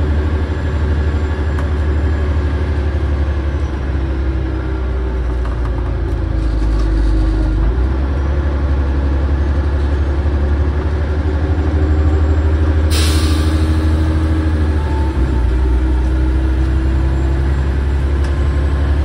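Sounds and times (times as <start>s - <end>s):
bus engine running: 0.0s - 19.0s
air hissing from bus air system: 12.9s - 14.2s.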